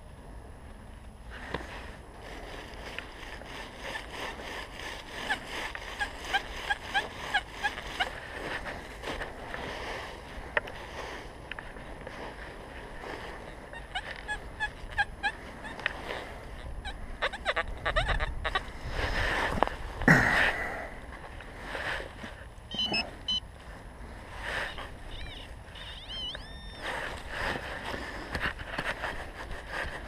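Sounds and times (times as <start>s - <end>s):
digging in dry leaf litter: 1.3s - 14.6s
metal detector beeps and tones: 22.7s - 23.5s, 24.6s - 27.1s.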